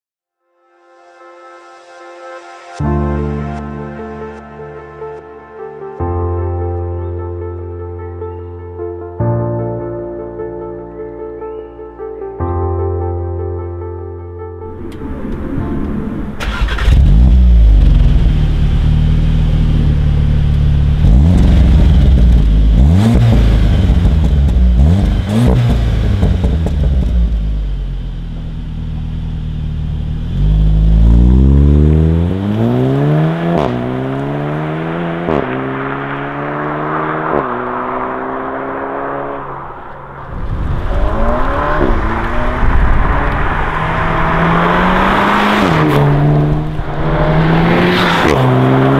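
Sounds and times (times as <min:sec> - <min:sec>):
car accelerating with upshifts: 0:14.8 - 0:48.9
car engine revving: 0:14.8 - 0:48.9.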